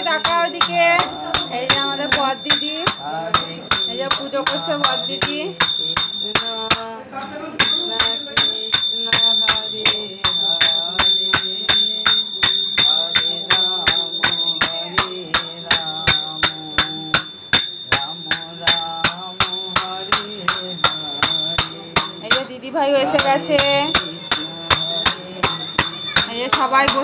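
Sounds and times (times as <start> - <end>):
hand cymbals struck: 0.0 - 6.9, 7.6 - 27.0
bright ringing tone: 0.0 - 7.0, 7.6 - 27.0
voices singing: 0.0 - 27.0.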